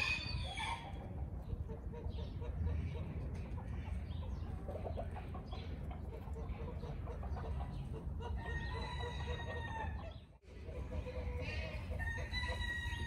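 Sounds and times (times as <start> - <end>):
chickens clucking: 0.0 - 13.0
rooster crowing: 8.5 - 10.0, 11.4 - 13.0.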